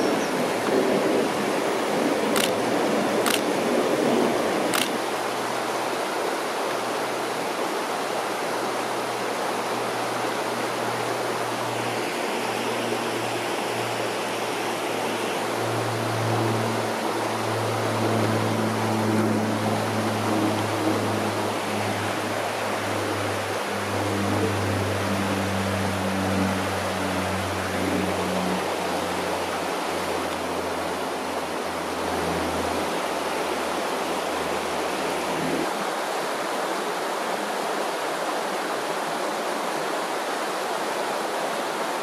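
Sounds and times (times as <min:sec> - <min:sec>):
river water rushing over rocks: 0:00.0 - 0:42.0
sharp clicks: 0:02.4 - 0:02.6, 0:03.2 - 0:03.6, 0:04.7 - 0:05.0
low steady hum: 0:08.3 - 0:35.7.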